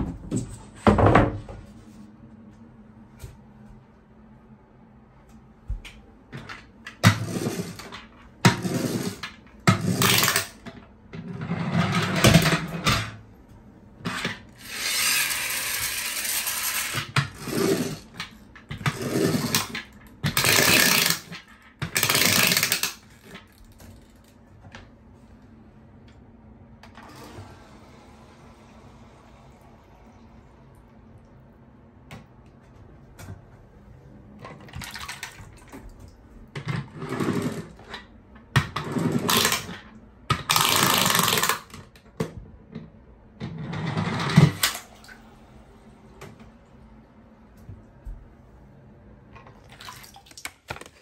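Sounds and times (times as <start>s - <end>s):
toy car gears whirring: 14.6s - 18.0s, 18.9s - 23.3s.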